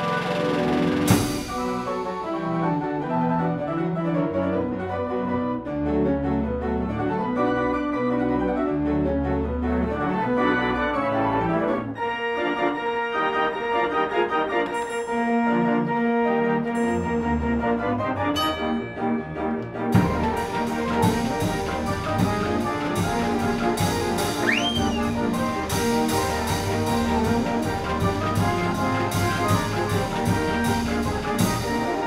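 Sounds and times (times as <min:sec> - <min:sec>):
organ-like keyboard music: 0:16.9 - 0:32.0.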